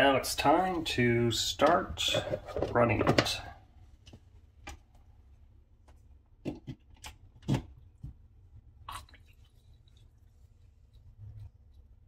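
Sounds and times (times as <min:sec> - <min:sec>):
faint low hum: 0:00.0 - 0:12.0
plastic clicks and knocks: 0:06.4 - 0:08.2.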